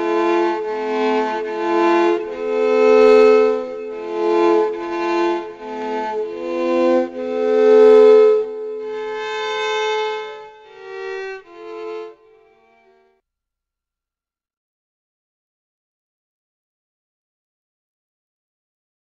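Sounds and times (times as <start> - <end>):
slow violin music: 0.0 - 13.1.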